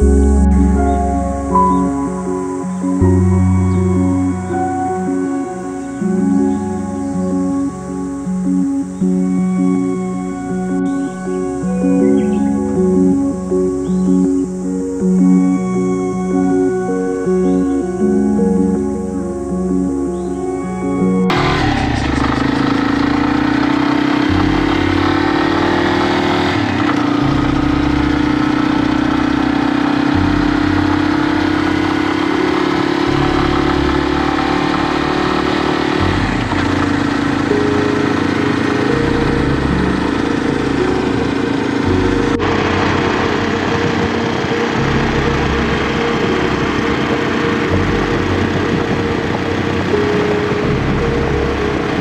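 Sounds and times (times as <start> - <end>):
motorcycle engine running: 21.3 - 52.0.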